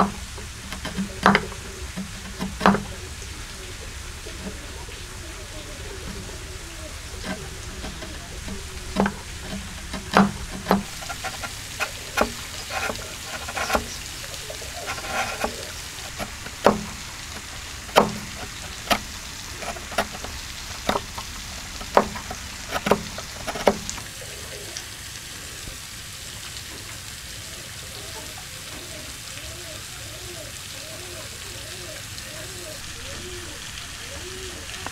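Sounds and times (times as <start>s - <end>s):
wood fibres splitting: 0.0s - 4.7s, 5.4s - 24.1s
steady background hiss: 0.0s - 34.9s
chisel knocking into wood: 2.4s - 2.9s, 7.2s - 13.9s, 14.9s - 17.0s, 17.9s - 21.2s, 21.8s - 23.9s.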